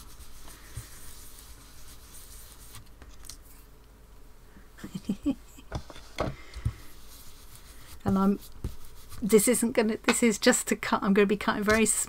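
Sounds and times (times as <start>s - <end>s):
foam brush rubbing on card: 0.0s - 2.9s, 6.7s - 9.6s.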